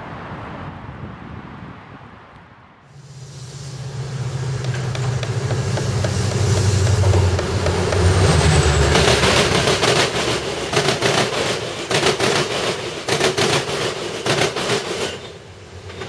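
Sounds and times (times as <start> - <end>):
train wheels clacking over rails: 4.5 - 16.0.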